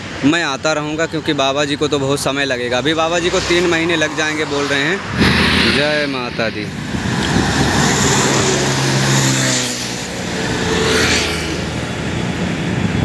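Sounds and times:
vehicle rushing past: 2.6s - 12.9s
vehicle engine passing by: 2.7s - 12.6s.

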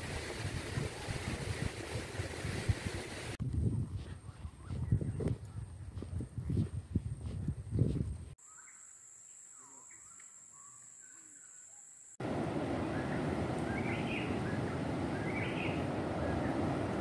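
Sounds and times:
wind buffeting microphone: 0.0s - 8.4s, 12.2s - 17.0s
high insect trill: 8.4s - 12.2s
birds calling: 12.2s - 17.0s
surf washing on shore: 12.2s - 17.0s.

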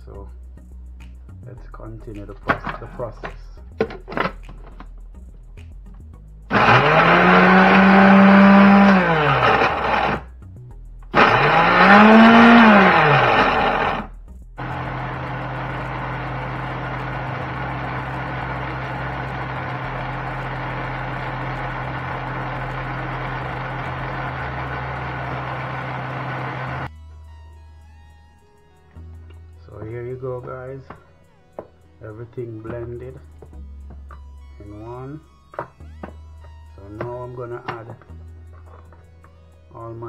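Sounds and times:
blender motor running: 6.5s - 10.3s, 11.2s - 26.9s.

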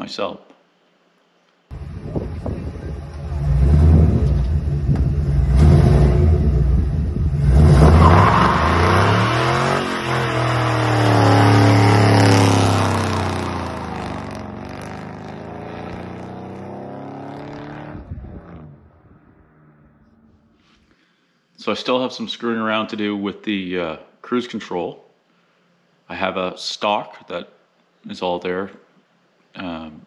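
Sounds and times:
truck engine revving: 1.7s - 20.5s.

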